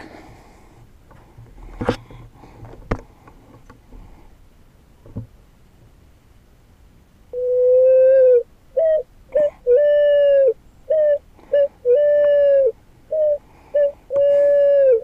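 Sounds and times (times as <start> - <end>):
pigeon cooing: 7.4 - 15.0.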